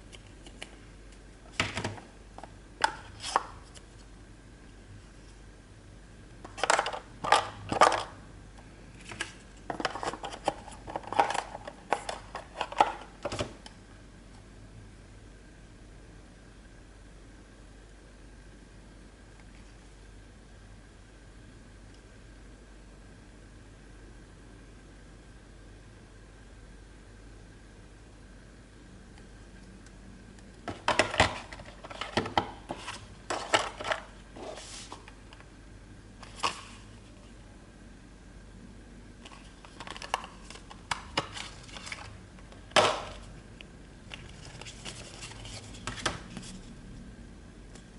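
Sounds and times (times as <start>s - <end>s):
packaging rustles and clicks: 39.2s - 43.3s
cardboard rustling: 44.3s - 46.6s.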